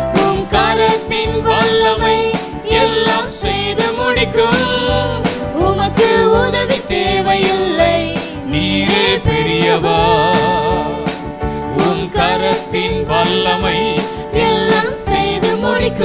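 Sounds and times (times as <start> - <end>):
church band playing worship song: 0.0 - 16.0
steady drum beat: 0.1 - 16.0.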